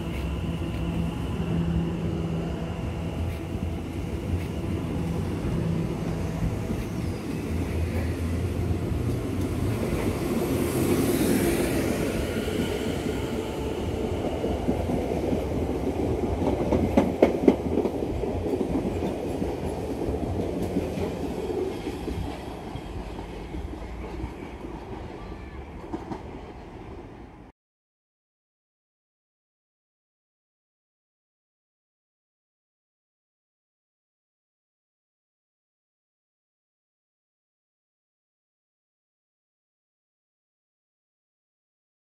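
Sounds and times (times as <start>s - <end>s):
train wheels rumbling on rails: 0.0s - 27.4s.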